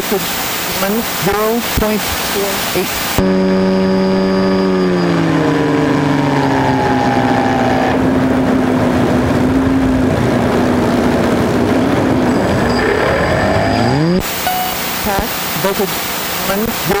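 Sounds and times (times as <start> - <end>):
faint steady hum: 0.0 - 17.0
electric motor whine falling: 3.0 - 8.8.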